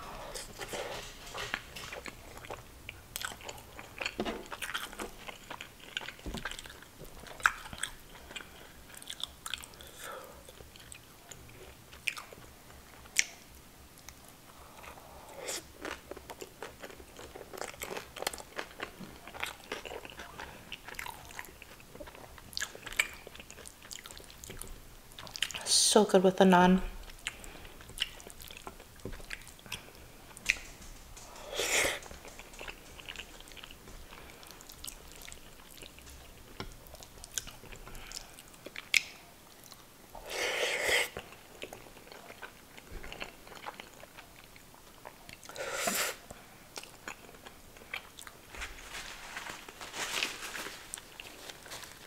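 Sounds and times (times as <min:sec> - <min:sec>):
wet chewing: 0:00.3 - 0:13.4, 0:14.0 - 0:25.6, 0:27.0 - 0:48.8
lip smacks: 0:27.1 - 0:39.8.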